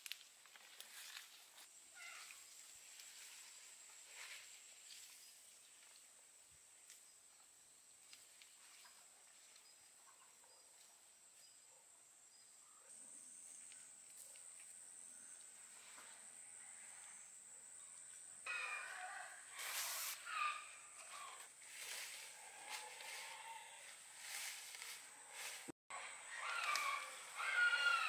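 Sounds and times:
rustling: 21.6s - 25.7s.

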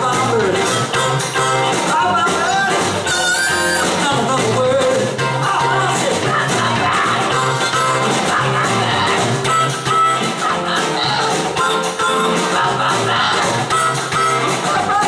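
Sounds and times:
blues-rock band playing: 0.0s - 15.0s
harmonica solo: 2.5s - 4.1s, 7.3s - 15.0s.

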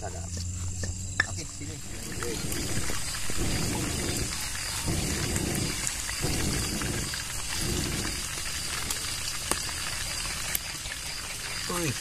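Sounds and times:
fire crackling: 0.0s - 12.0s
fish frying in oil: 0.0s - 12.0s
man blowing on fire: 2.1s - 9.0s.

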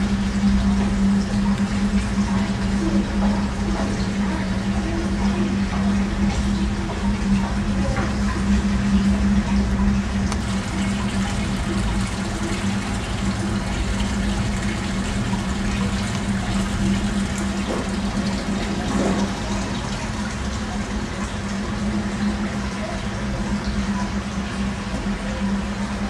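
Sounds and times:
fountain water splashing: 10.2s - 23.5s.

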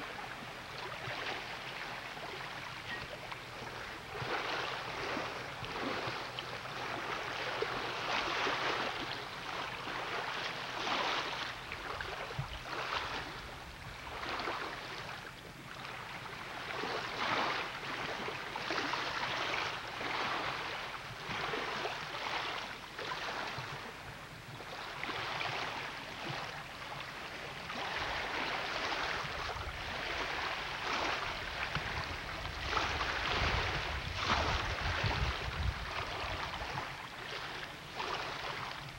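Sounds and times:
lake water splashing against dock: 0.0s - 38.9s
wind buffeting microphone: 29.2s - 37.0s.

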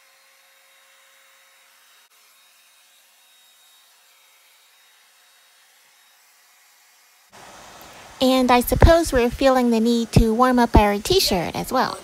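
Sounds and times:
hair dryer whooshing hiss: 6.8s - 12.0s.

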